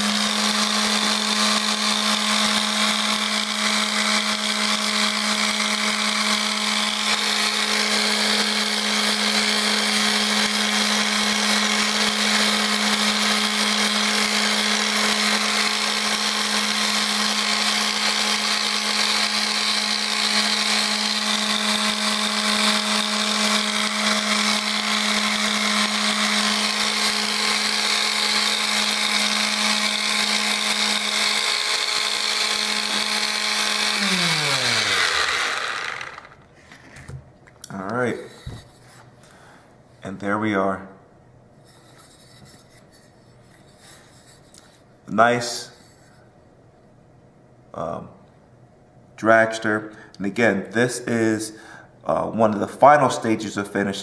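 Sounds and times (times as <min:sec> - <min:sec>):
orbital sander running: 0:00.0 - 0:36.4.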